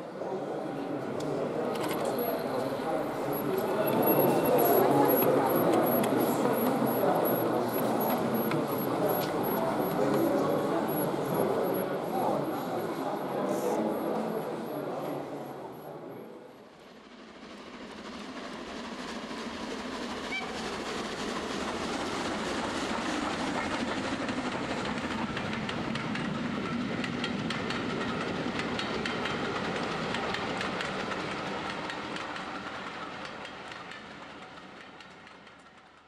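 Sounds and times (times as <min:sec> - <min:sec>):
train wheels clicking on rails: 0:00.0 - 0:15.8, 0:16.9 - 0:36.0
train rumble: 0:00.0 - 0:36.0.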